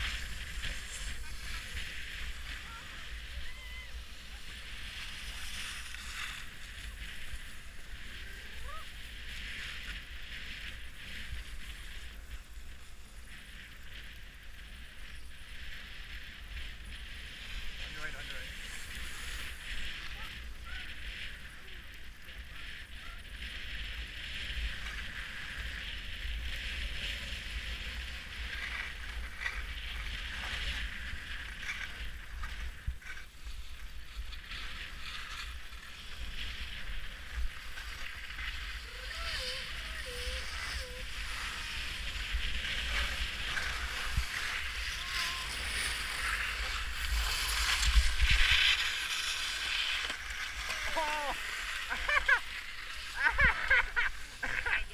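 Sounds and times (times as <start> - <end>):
skis scraping over snow: 0.0 - 54.9.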